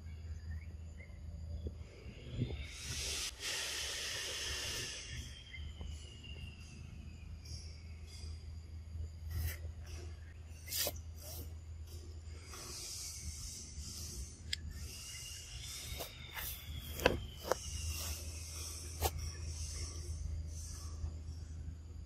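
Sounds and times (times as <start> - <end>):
high hiss: 2.6 - 6.7.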